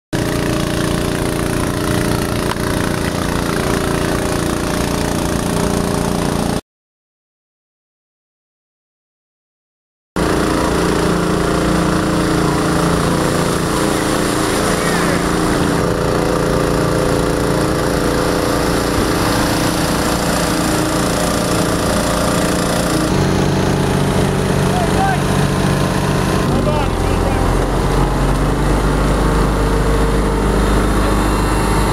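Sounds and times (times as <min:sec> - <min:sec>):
engine-driven pump running: 0:00.1 - 0:06.6, 0:10.2 - 0:31.9.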